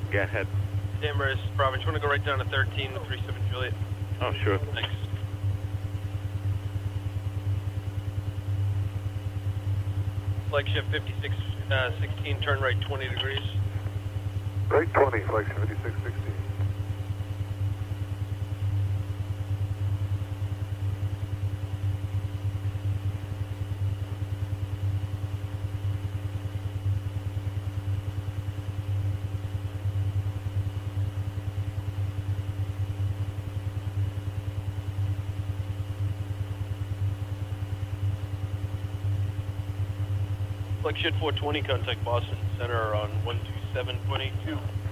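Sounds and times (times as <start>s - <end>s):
radio low hum: 0.0s - 5.4s, 10.5s - 17.4s, 40.7s - 44.9s
faint pulsing tones: 0.0s - 44.9s.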